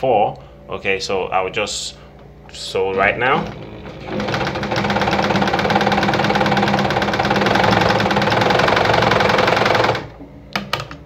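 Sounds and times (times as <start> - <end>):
sewing machine ticking: 3.2 - 10.1.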